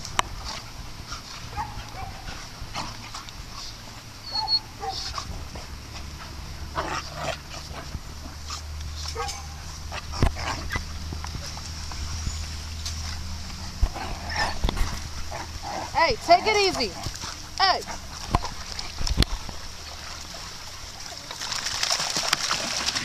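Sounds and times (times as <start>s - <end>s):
dogs scuffling: 0.0s - 23.0s
dogs yipping and whining: 1.5s - 5.2s, 6.8s - 20.5s.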